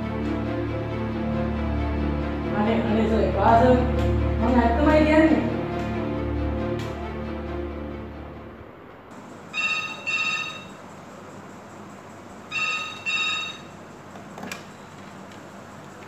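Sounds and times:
telephone double ringing: 9.5 - 10.8, 12.5 - 13.8.

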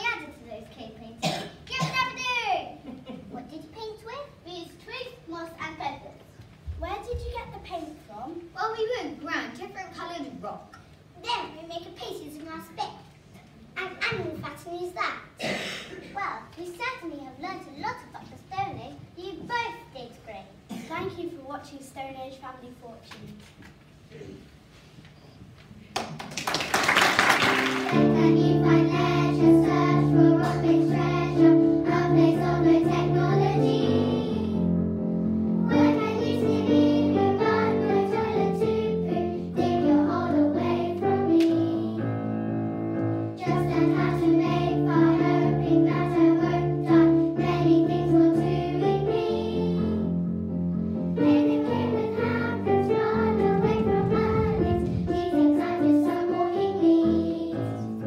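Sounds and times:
instrumental accompaniment: 27.4 - 58.0
girls singing together: 27.8 - 34.7, 35.6 - 42.1, 43.4 - 50.1, 51.2 - 58.0.

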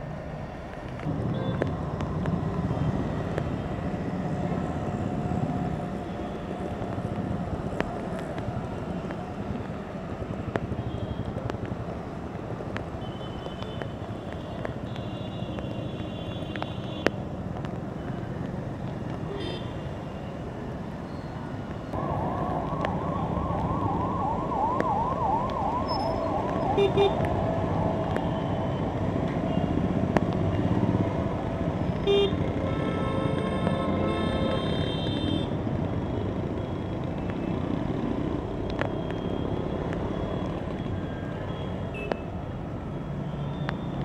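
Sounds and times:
rain: 0.0 - 44.0
traffic on wet roads: 0.0 - 44.0
emergency siren yelping: 21.9 - 29.2.

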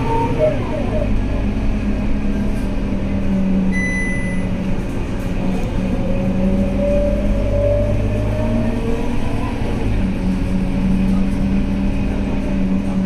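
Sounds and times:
bus engine running: 0.0 - 13.0
high electronic beep: 3.7 - 4.5.

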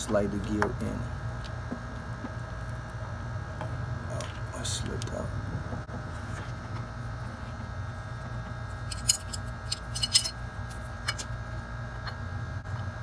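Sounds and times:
steady low hum: 0.0 - 13.0
chain clicking on sprocket: 8.9 - 10.4.

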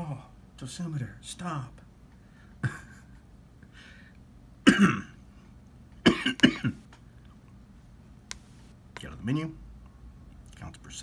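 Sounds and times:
man coughing: 4.6 - 5.2, 6.0 - 6.8.

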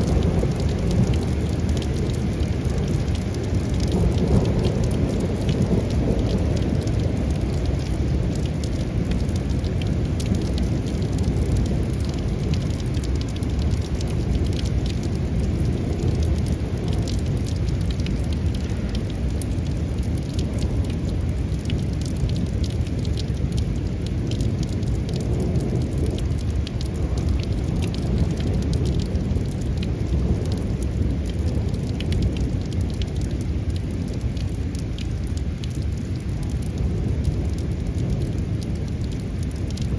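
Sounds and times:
heavy rain pouring: 0.0 - 39.9
raindrop ticks: 0.0 - 39.9.

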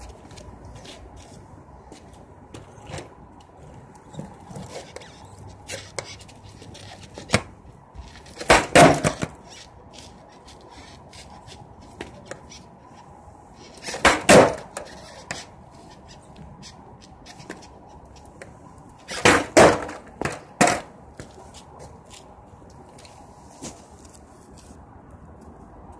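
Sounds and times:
skateboard clattering on hard floor: 8.2 - 9.3, 13.9 - 15.4, 19.1 - 20.9.

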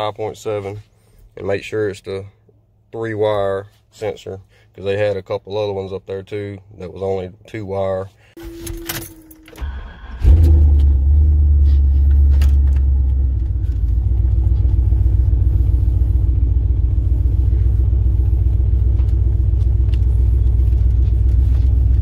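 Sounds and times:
car engine starting and idling: 8.4 - 22.0.

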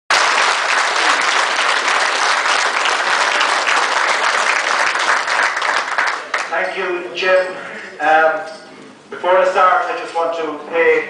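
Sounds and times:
audience applauding: 0.1 - 6.6.

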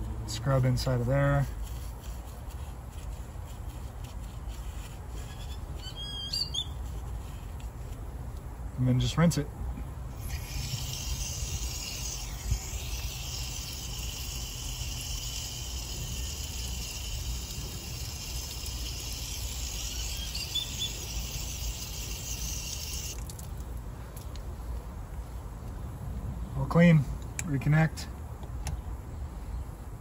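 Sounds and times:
water running from hose bib: 10.2 - 23.7.

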